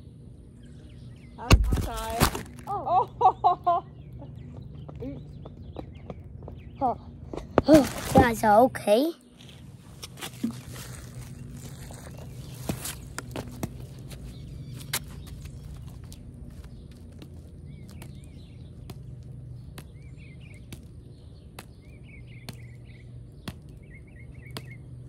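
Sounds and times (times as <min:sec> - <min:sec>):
steady low hum: 0:00.0 - 0:25.0
small bird chirping: 0:14.0 - 0:25.0.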